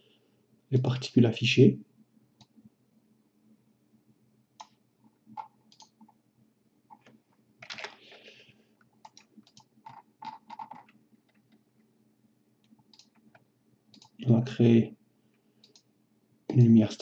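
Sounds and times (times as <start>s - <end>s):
computer mouse and keyboard clicks: 4.6s - 6.2s, 6.9s - 11.6s, 12.6s - 14.2s, 15.6s - 15.9s.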